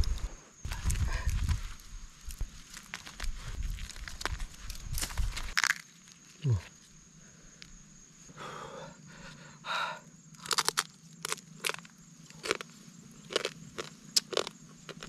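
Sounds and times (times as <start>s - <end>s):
crab shells cracking: 5.0s - 5.9s, 10.4s - 11.8s.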